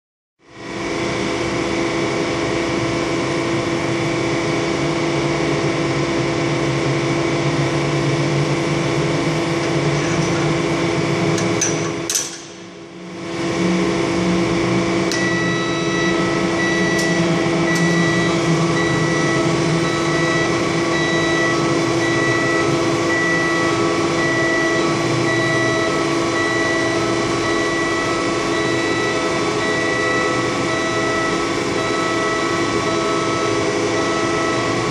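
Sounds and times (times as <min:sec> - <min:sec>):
boom lift humming: 0:05.2 - 0:34.9
repeating high beep: 0:15.2 - 0:34.7.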